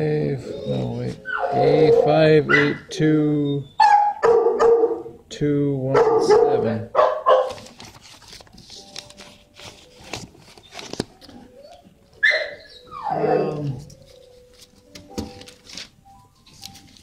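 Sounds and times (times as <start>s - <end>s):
dog calling low: 0.4s - 4.1s, 11.6s - 13.9s
dog yelping: 0.6s - 2.9s, 3.7s - 5.0s, 6.0s - 7.6s, 11.5s - 13.8s.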